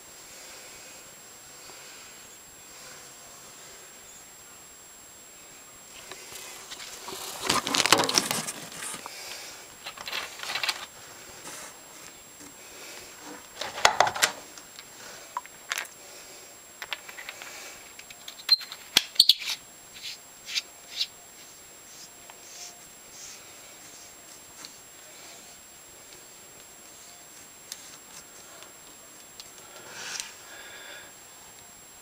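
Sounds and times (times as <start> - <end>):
rustling and scraping of packaging: 5.9 - 12.2, 13.1 - 14.9.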